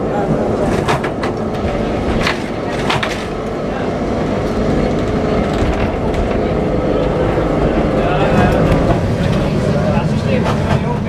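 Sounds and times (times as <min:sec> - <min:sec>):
tram rumbling on rails: 0:00.0 - 0:11.0.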